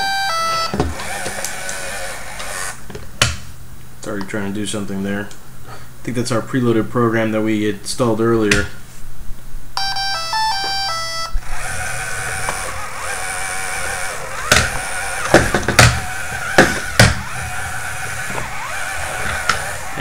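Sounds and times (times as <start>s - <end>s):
electronic beeps tune: 0.0s - 0.8s, 9.8s - 11.4s
robot motors whining: 0.8s - 2.8s, 11.4s - 20.0s
sharp knocks: 14.4s - 17.3s.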